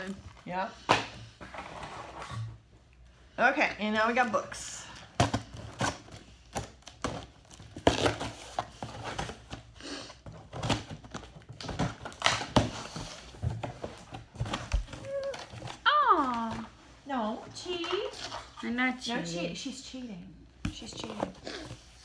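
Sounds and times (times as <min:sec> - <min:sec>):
books knocking and thumping: 0:05.2 - 0:15.8
cardboard and paper rustling: 0:05.2 - 0:19.4, 0:20.8 - 0:22.0.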